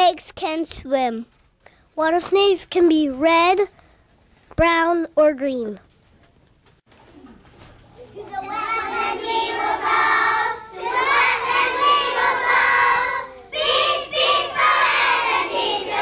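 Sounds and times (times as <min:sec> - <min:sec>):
children singing together: 0:08.2 - 0:16.0.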